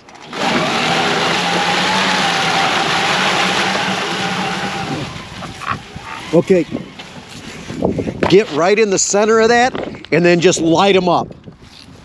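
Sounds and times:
electric motor whine: 0.1s - 8.4s.

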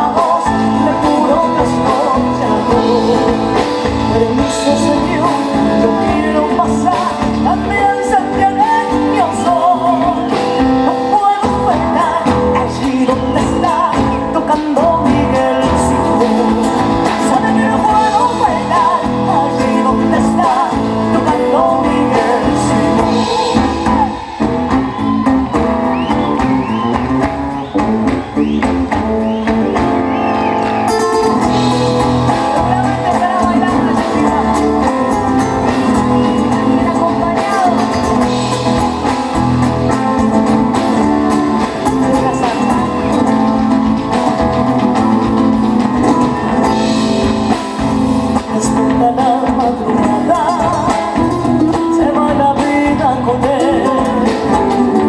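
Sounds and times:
woman singing into a microphone: 0.0s - 24.4s, 32.4s - 38.9s, 48.4s - 55.0s
live band with guitar: 0.0s - 55.0s.

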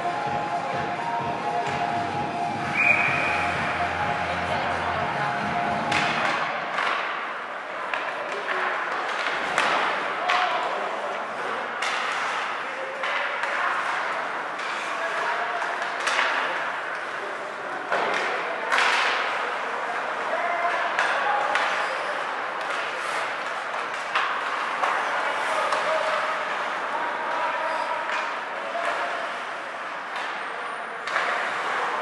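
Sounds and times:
indistinct voices: 0.0s - 7.1s
hockey sticks and puck clacking: 2.7s - 32.0s
skates scraping on ice: 2.7s - 32.0s.

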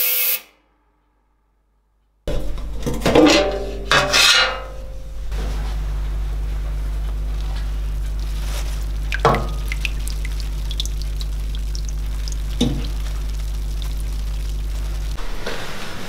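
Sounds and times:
basket clanking against tank: 2.3s - 5.0s
ultrasonic cleaner humming: 4.8s - 16.0s
water dripping: 7.0s - 15.2s.

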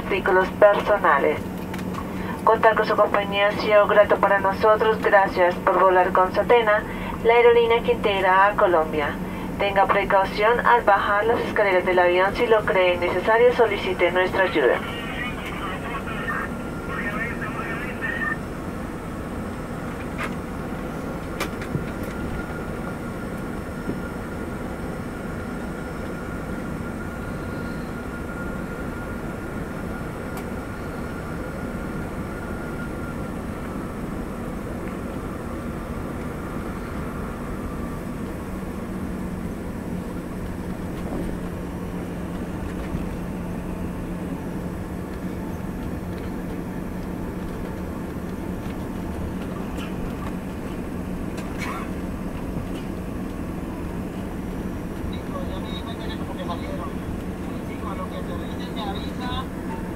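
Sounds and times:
jet engines idling rumble: 0.0s - 59.9s
faint high whine: 22.0s - 38.4s.

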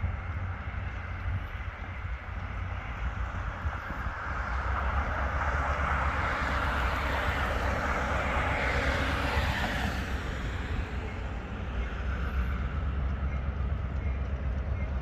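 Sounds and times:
car passing: 2.3s - 14.2s.

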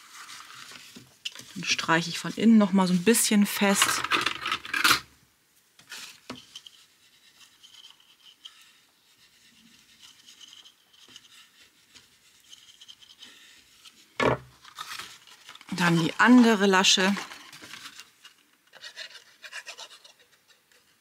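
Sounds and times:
paper rustling: 0.0s - 2.3s, 14.6s - 19.2s
fingertips rubbing paper: 6.5s - 14.0s, 15.0s - 17.5s, 18.7s - 20.9s.

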